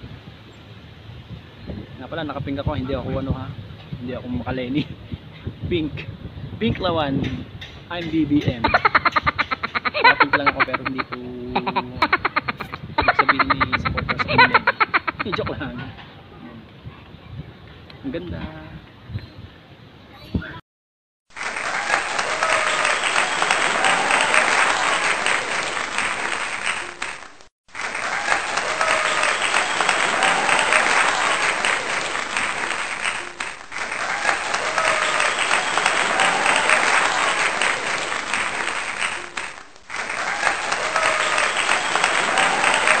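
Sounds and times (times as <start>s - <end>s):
crowd applause with cheering: 8.0s - 15.2s, 21.3s - 43.0s.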